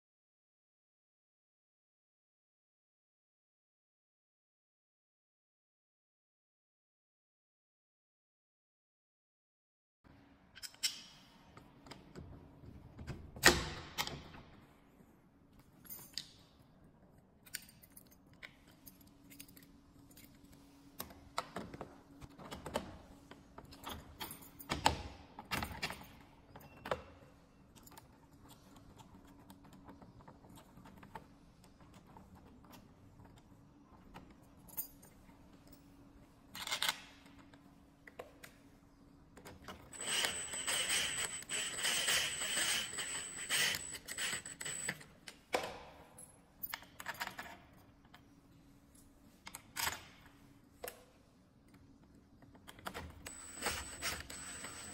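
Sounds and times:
keys jangling: 17.4 - 20.4
cordless drill whining: 39.9 - 44.9, 53.3 - 54.9.

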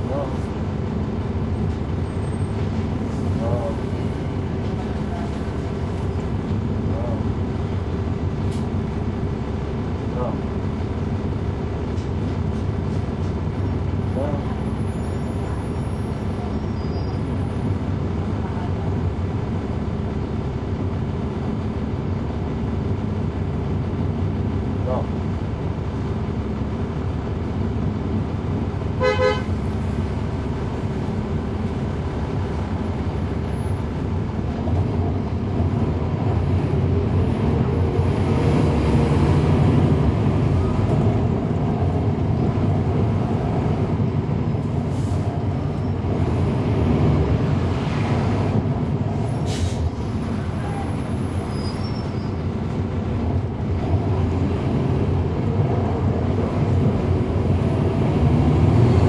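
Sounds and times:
bus diesel engine running: 0.0 - 59.0
vehicle horn toot: 29.0 - 29.5.

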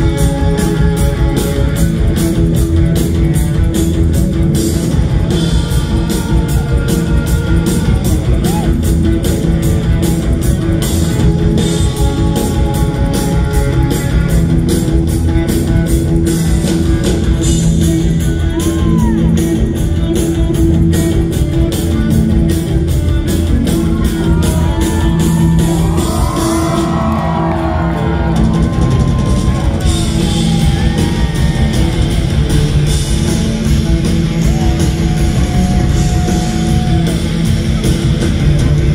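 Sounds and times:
live rock band playing loudly: 0.0 - 38.9
high wailing guitar slides: 34.3 - 37.5.

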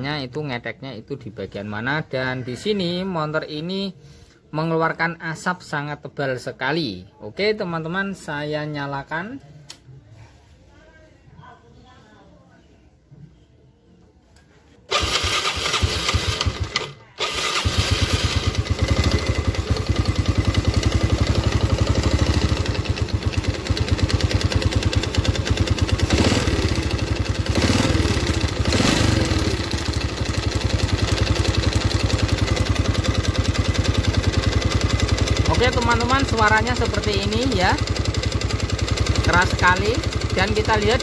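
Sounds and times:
motorcycle engine rough ticking: 15.0 - 41.0.

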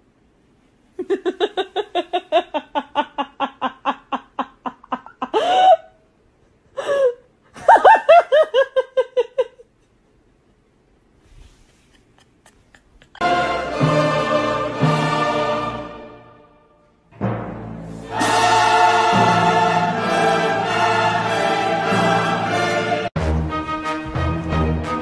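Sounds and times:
person laughing: 1.0 - 6.0, 6.8 - 9.8, 11.7 - 13.4.

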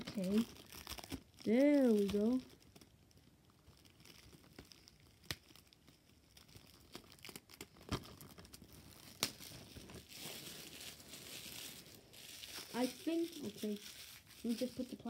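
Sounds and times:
plastic shrink wrap crinkling: 0.0 - 15.0.

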